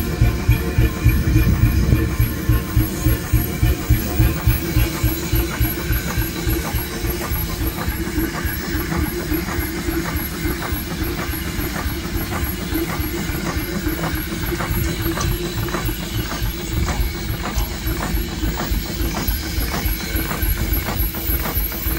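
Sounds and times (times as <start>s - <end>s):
mechanical knocks from crank: 0.0s - 21.9s
steam engine beating steadily: 0.0s - 21.9s.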